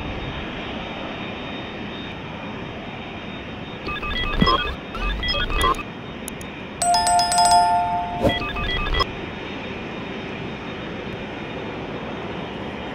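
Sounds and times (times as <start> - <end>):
two-tone chime: 6.8 - 9.0.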